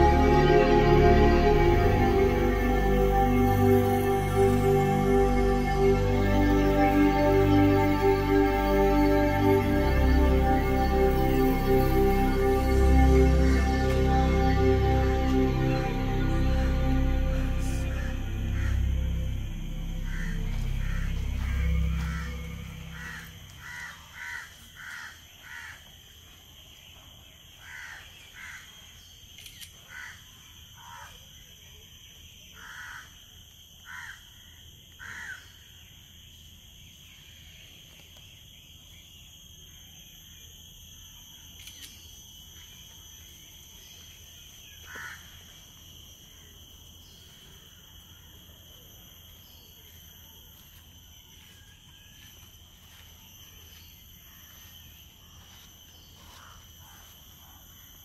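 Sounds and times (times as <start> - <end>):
steady high-pitched drone: 0.0 - 24.5, 42.7 - 58.0.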